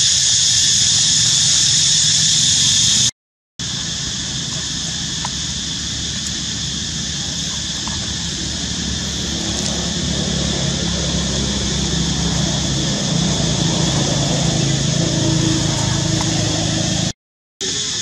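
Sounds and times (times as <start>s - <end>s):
continuous high hiss: 0.0s - 18.0s
vehicle engine hum: 3.6s - 17.2s.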